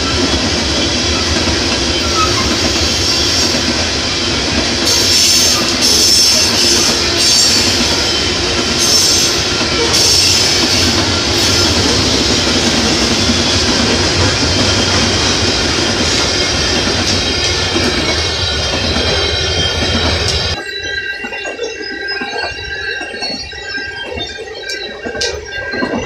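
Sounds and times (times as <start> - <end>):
high wheel squeal: 0.0 - 26.0
train wheels rumbling on rail: 0.0 - 26.0.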